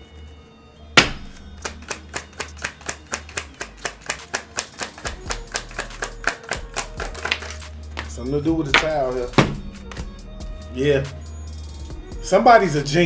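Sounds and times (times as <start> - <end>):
faint background music: 0.0 - 13.0
card snap: 1.0 - 8.1
cards clicking while shuffled: 1.3 - 8.1.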